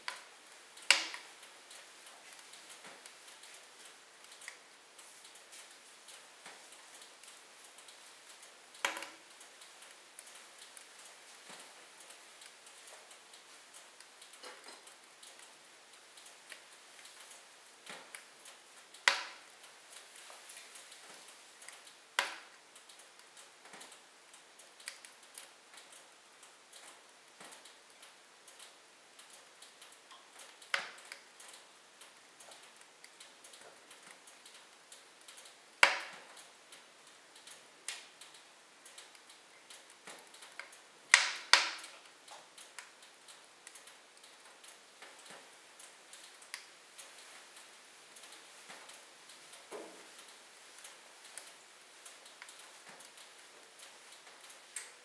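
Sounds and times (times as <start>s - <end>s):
logs crackling in fireplace: 0.0s - 55.0s
sharp fire pops: 0.1s - 1.3s, 19.0s - 19.5s, 40.2s - 41.9s.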